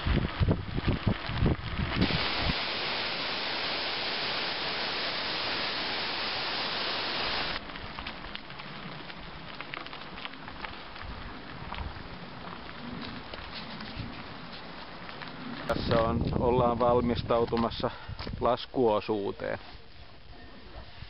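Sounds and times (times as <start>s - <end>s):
bike tyres crunching on gravel: 0.0s - 18.6s
waterfall rushing: 2.0s - 7.6s
small ticks and rattles: 7.6s - 16.4s.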